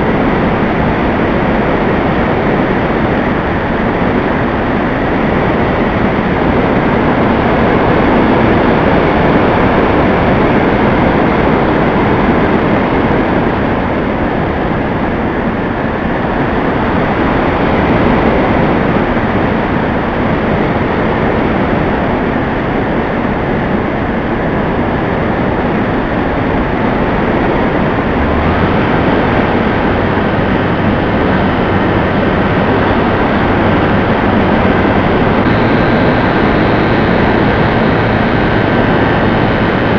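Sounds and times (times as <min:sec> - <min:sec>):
airflow and motor rush: 0:00.0 - 0:39.9
low hum: 0:25.2 - 0:39.9
steady high tone: 0:27.4 - 0:39.9.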